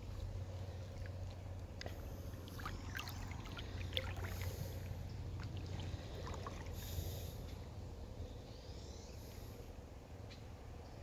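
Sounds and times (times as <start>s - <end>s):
river water lapping: 0.0s - 7.9s
steady low hum: 0.0s - 11.0s.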